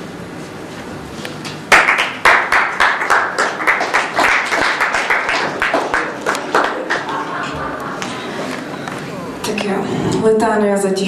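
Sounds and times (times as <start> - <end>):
low room hum: 0.0 - 11.0
audience applauding: 1.7 - 8.6.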